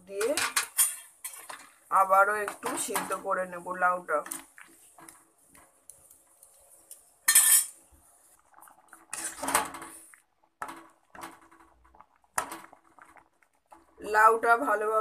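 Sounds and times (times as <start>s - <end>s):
metal utensil scraping a metal pan: 0.2s - 1.8s, 7.2s - 7.8s, 9.1s - 10.0s.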